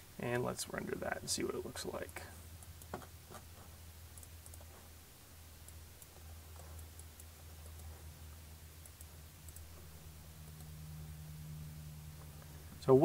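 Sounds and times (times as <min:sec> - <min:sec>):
low steady hum: 0:00.0 - 0:13.0
faint mouse clicks: 0:04.1 - 0:04.7, 0:08.8 - 0:09.8.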